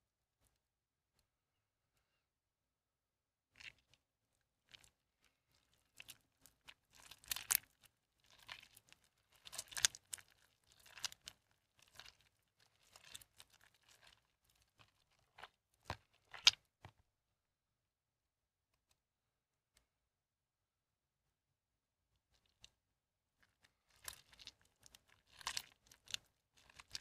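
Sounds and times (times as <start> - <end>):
wet soap squishing by hand: 3.5 - 17.1, 22.1 - 27.0.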